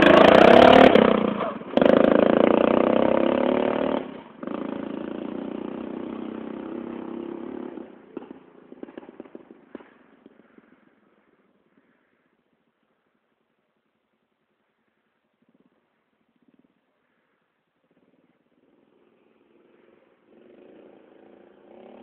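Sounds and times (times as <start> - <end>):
lawn tractor engine running hard: 0.0 - 7.1.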